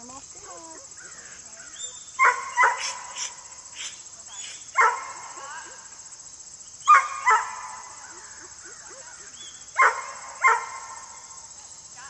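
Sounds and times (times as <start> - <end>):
dog barking: 2.2 - 3.3, 4.8 - 5.4, 6.9 - 7.9, 9.8 - 11.0.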